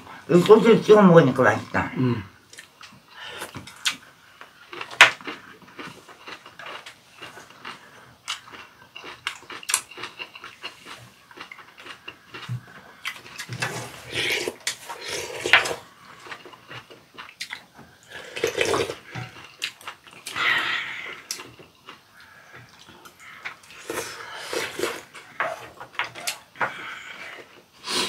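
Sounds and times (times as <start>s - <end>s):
chewing: 2.5s - 28.0s
slurping broth: 13.1s - 15.9s, 18.0s - 19.5s, 23.4s - 26.4s, 27.1s - 28.0s.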